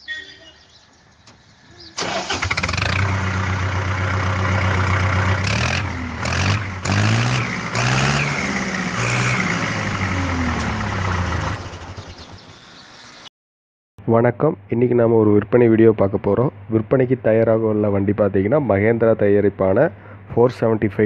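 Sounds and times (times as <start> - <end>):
engine starting and revving: 1.9 - 13.3.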